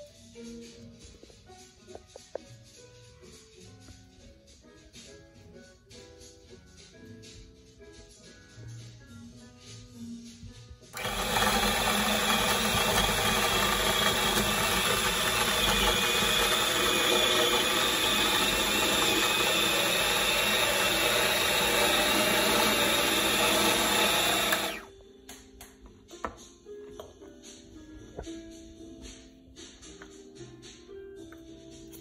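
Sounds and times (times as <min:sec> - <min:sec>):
food processor motor running: 0:11.0 - 0:24.9.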